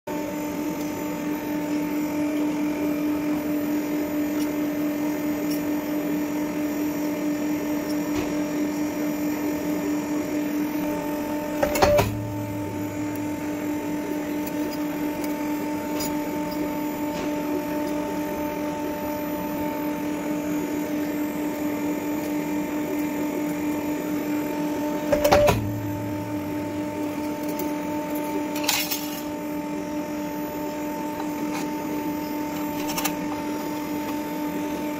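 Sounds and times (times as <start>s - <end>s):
stamping press motor hum: 4.1s - 34.9s
press striking clunk: 11.5s - 15.0s, 25.1s - 28.0s.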